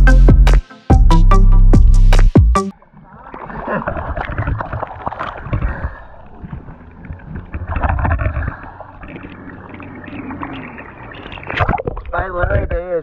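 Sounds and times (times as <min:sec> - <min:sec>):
seawater sloshing and splashing: 0:02.8 - 0:12.4.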